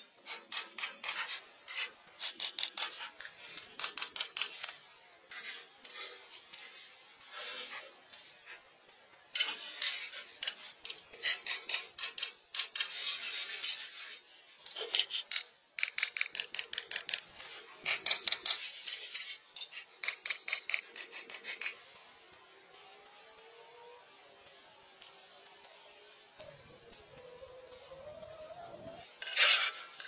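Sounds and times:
hand tool scraping wood: 28.9 - 30.0.

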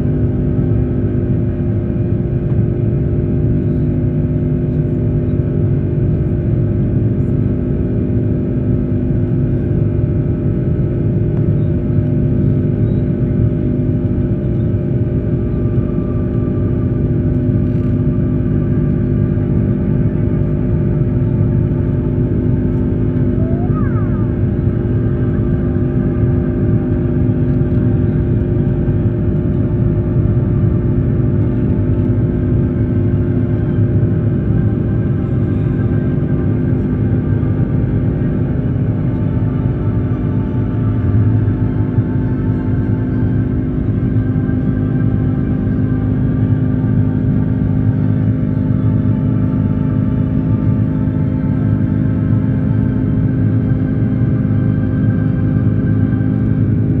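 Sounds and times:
airliner cabin jet engine drone: 0.0 - 57.0
low hums: 0.0 - 57.0.

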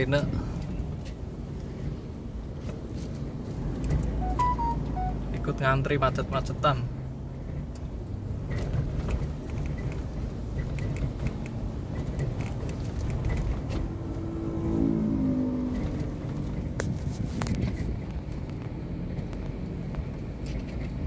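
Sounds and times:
traffic rumble from inside car: 0.0 - 21.0
engine note rising and falling: 4.1 - 5.8, 13.8 - 16.6.

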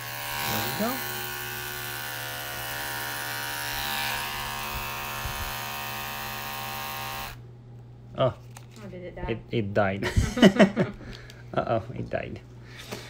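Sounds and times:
paw trimmer buzzing: 0.0 - 7.4.

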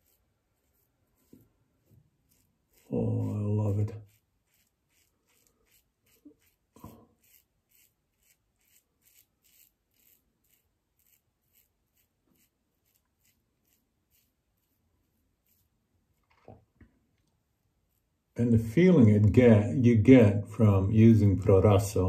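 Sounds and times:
razor scraping stubble: 0.0 - 16.5.

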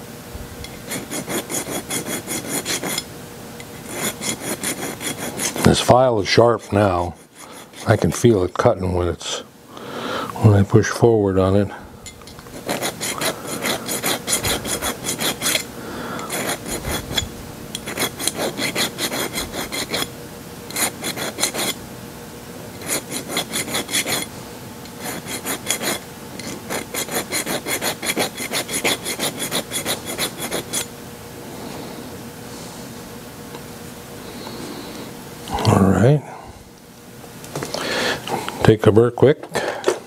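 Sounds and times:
file rasping on metal: 0.7 - 3.1, 3.7 - 8.3, 12.5 - 20.1, 20.7 - 21.8, 22.8 - 24.3, 24.9 - 30.9.

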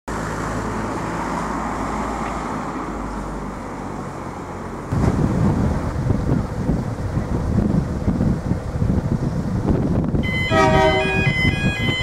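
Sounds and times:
low engine hum: 0.1 - 12.0
road traffic noise: 0.1 - 12.0
wind buffeting microphone: 4.9 - 12.0.

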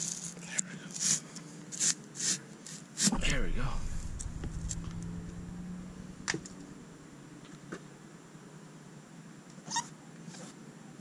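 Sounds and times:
faint low hum: 3.1 - 8.0.

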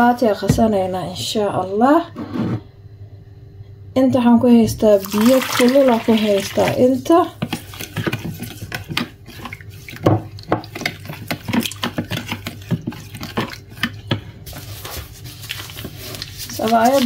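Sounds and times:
spoon stirring water: 5.0 - 17.0.

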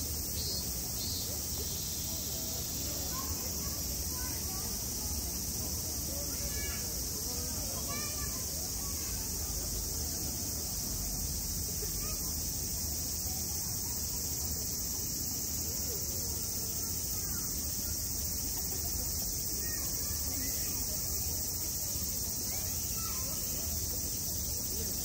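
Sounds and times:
high-pitched insect chorus: 0.0 - 25.0
faint chirping calls: 0.2 - 3.4.

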